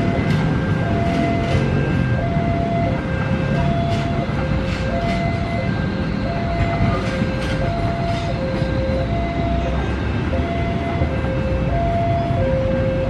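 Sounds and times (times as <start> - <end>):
train carriages rumbling past: 0.0 - 13.0
two-tone warning alarm: 0.0 - 13.0
wheels clicking over rail joints: 3.4 - 9.2.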